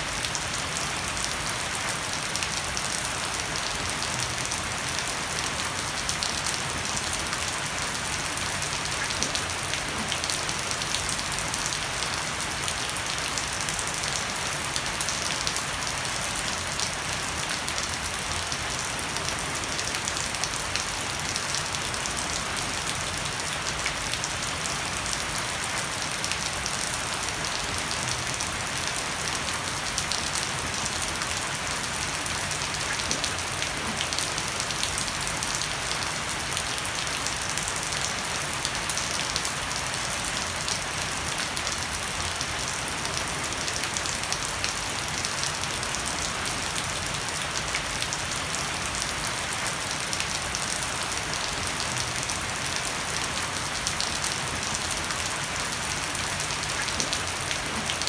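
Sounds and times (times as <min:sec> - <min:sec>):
heavy rain on wooden deck: 0:00.0 - 0:58.0.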